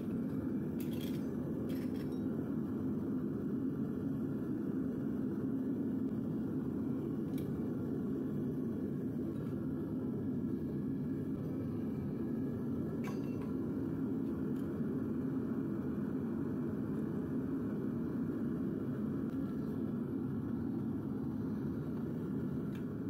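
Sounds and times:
furnace burner rumbling: 0.0s - 23.0s
light metal clinks: 13.0s - 13.6s.

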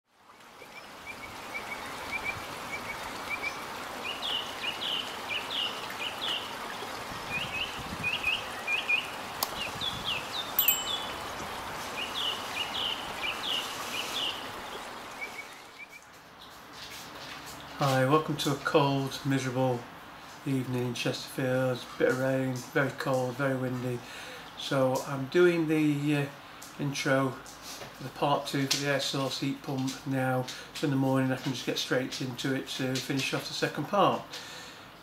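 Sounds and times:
water trickling: 0.2s - 17.8s
small birds chirping: 0.8s - 16.5s.

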